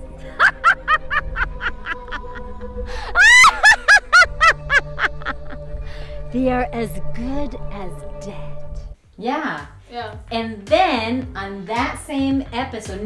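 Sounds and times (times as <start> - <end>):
background music: 0.0 - 13.0
woman cackling: 3.2 - 5.6.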